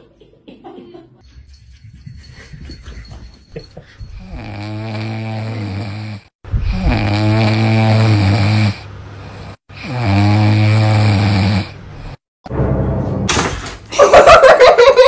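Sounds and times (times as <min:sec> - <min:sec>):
dog snoring: 0:04.2 - 0:12.2.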